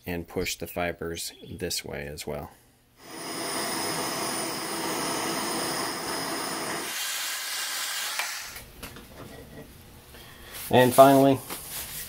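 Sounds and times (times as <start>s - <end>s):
gas torch hissing: 3.0s - 8.6s.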